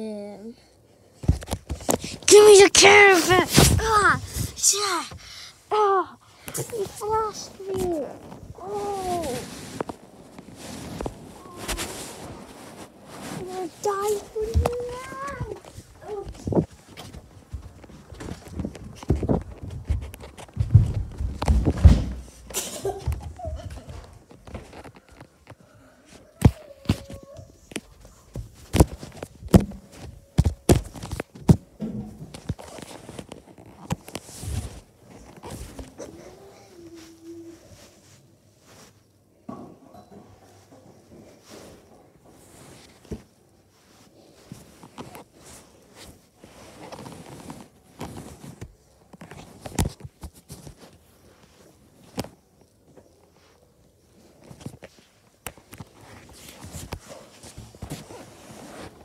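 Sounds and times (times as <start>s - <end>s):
quick footsteps and knocks: 6.4s - 25.5s, 26.4s - 36.0s
footsteps on wooden stairs: 14.4s - 24.7s.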